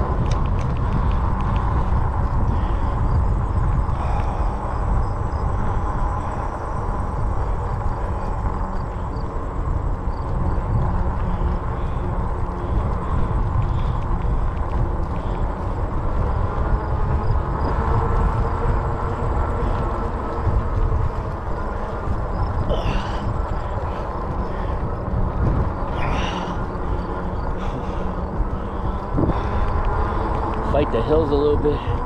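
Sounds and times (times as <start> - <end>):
wind buffeting microphone: 0.0 - 32.0.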